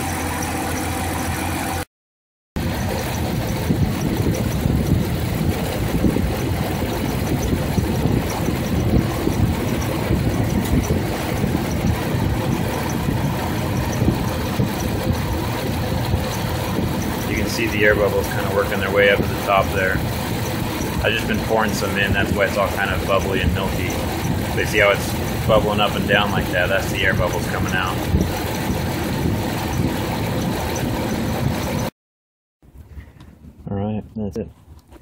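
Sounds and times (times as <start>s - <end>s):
car engine idling: 0.0s - 1.8s, 2.6s - 31.9s.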